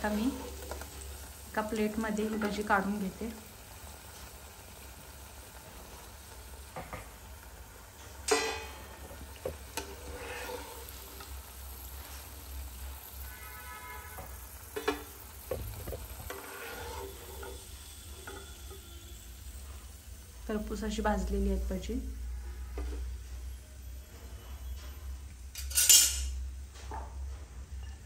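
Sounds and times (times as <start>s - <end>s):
food sizzling in hot oil: 0.0s - 26.6s.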